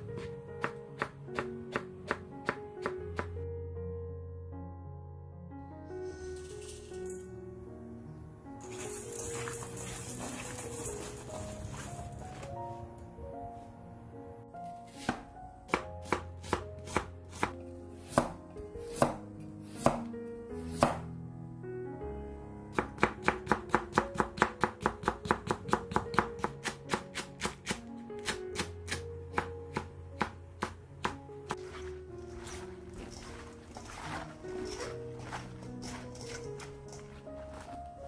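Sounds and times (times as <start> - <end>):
knife chopping on wooden board: 14.9 - 20.1, 20.7 - 21.0.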